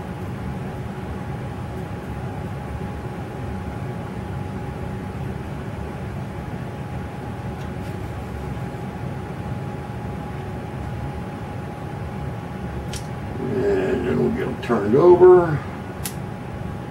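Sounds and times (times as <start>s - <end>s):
faint steady whine: 0.0s - 16.9s
low rumble: 13.2s - 14.9s.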